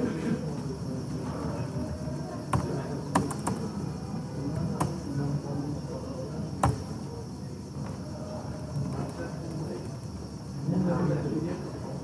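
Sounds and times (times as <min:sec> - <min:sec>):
low background murmur: 0:00.0 - 0:12.0
computer keyboard keys clicking: 0:02.5 - 0:03.6.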